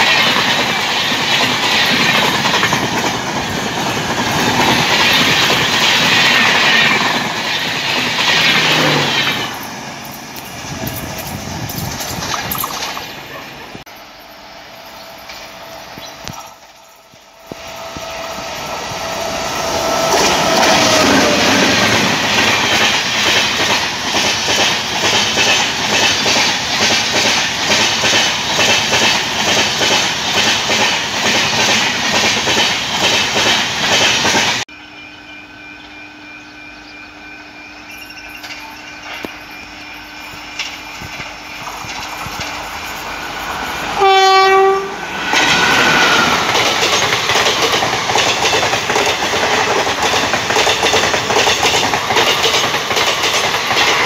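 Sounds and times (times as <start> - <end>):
train wheels clattering over rail joints: 0.0 - 13.2, 20.1 - 34.6, 40.3 - 54.0
train horn: 17.5 - 21.9, 44.0 - 45.1
locomotive horn blast: 44.0 - 45.1.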